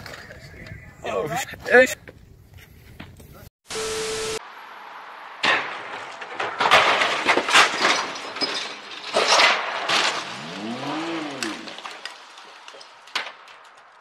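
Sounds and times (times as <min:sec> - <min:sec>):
car crash impacts: 0:04.6 - 0:14.0
scraping and clinking debris: 0:05.4 - 0:14.0.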